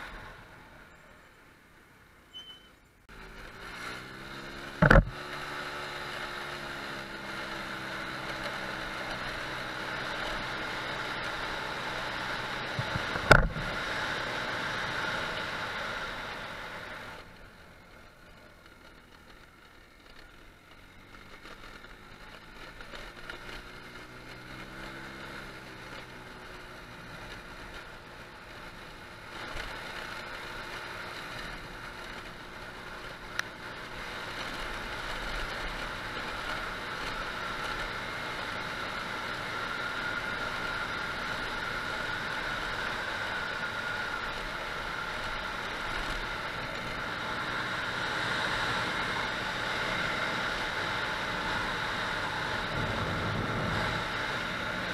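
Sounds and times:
road noise: 0.0s - 54.9s
motor scooter engine running: 3.1s - 54.9s
wind noise: 52.4s - 54.9s.

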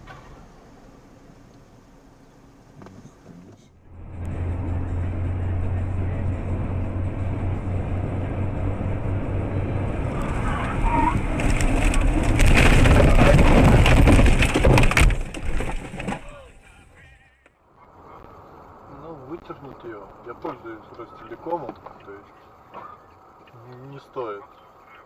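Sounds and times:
car engine and tyre rumble: 0.0s - 25.0s
car crashing through bushes: 10.0s - 16.5s.

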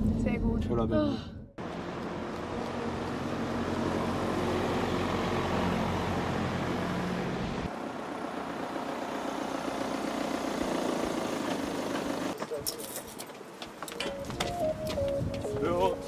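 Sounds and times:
car engine rumble: 0.0s - 12.6s
road noise: 1.6s - 16.0s.

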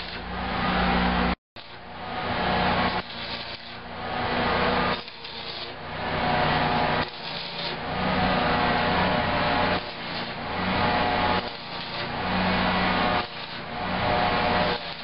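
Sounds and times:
arc welding crackling hiss: 0.0s - 0.4s, 1.6s - 1.9s, 2.8s - 3.9s, 4.8s - 5.8s, 6.9s - 7.9s, 9.2s - 15.0s.

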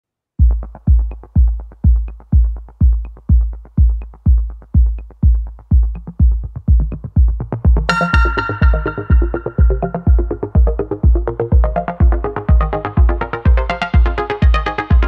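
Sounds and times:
deep kick drum: 0.4s - 15.0s
bright synth chord: 7.9s - 10.9s.

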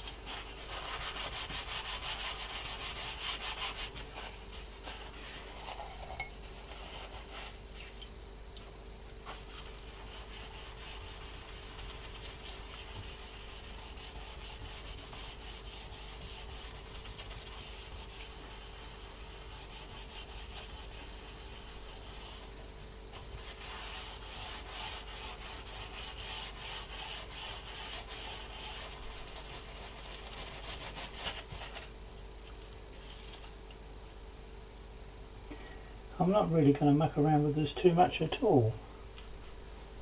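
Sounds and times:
paper towel rubbing a board: 0.0s - 7.9s, 9.2s - 31.9s.

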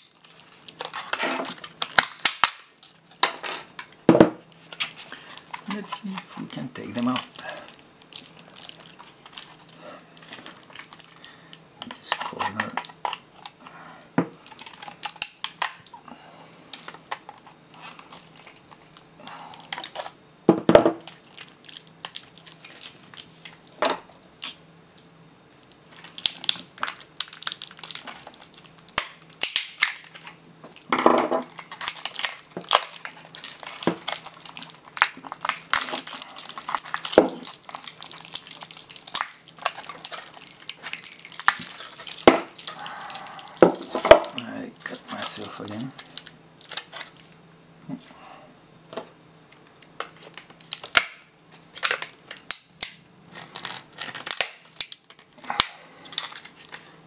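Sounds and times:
plastic clicks and cracks: 48.9s - 56.8s.

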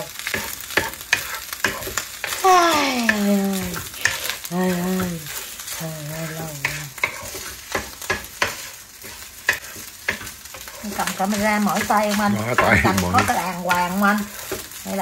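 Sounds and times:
spatula scraping and knocking pan: 0.0s - 2.4s, 3.0s - 15.0s
rice sizzling in frying pan: 0.0s - 15.0s
wordless vocal sounds: 12.2s - 13.3s.

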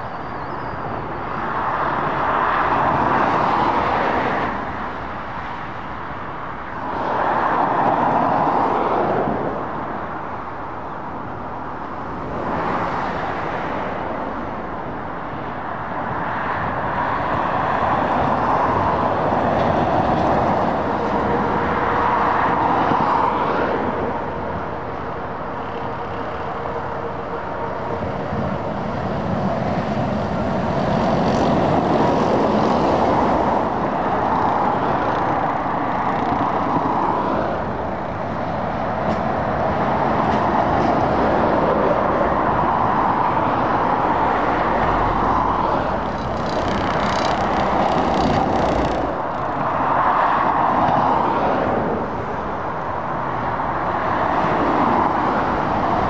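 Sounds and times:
lorries and cars passing: 0.0s - 56.0s.

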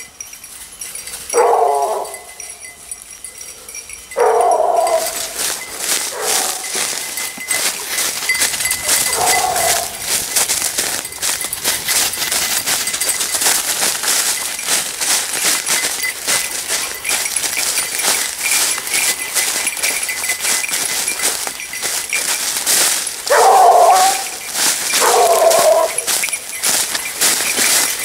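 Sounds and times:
dry leaves rustling underfoot: 0.0s - 28.0s
hound baying: 1.0s - 2.7s, 3.3s - 12.9s, 23.2s - 27.9s.

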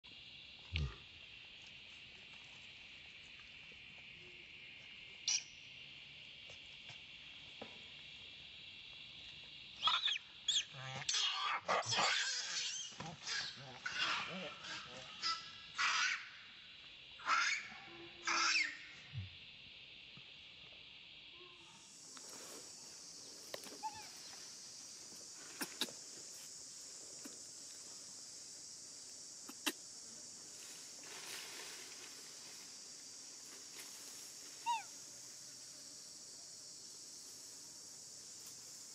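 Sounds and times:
high-pitched insect chorus: 0.0s - 38.9s.

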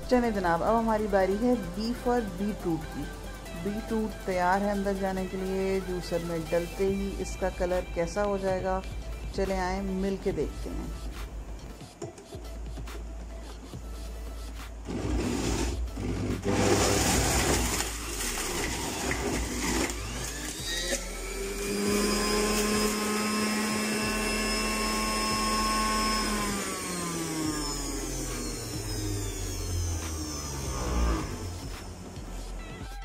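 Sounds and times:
juicer knocks: 14.8s - 23.6s
juicer motor grinding: 14.8s - 32.8s.

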